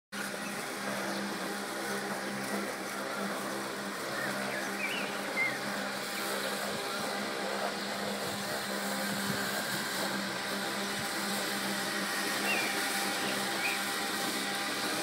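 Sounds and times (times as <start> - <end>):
robotic lawn mower humming: 0.2 - 15.0.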